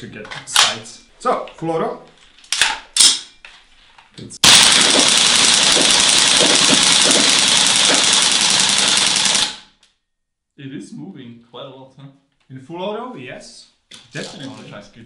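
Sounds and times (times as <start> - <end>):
airsoft rifle automatic burst: 4.4 - 9.8.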